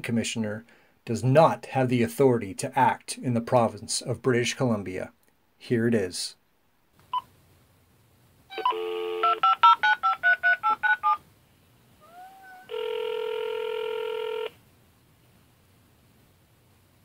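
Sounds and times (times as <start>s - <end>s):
phone dial tone: 8.5s - 11.2s, 12.7s - 14.6s
phone ringback tone: 8.5s - 11.2s, 12.7s - 14.6s.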